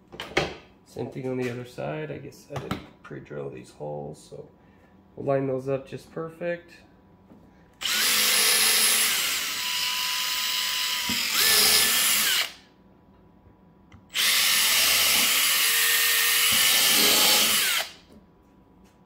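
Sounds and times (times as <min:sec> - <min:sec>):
cordless drill driving screws: 0:07.8 - 0:12.6, 0:14.1 - 0:18.0.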